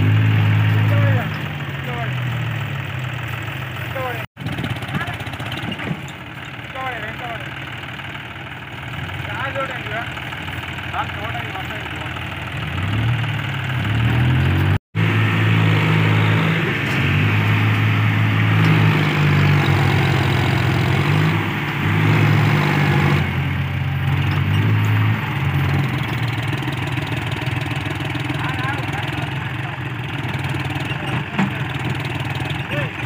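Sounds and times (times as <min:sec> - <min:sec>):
tractor diesel engine working hard: 0:00.0 - 0:33.0.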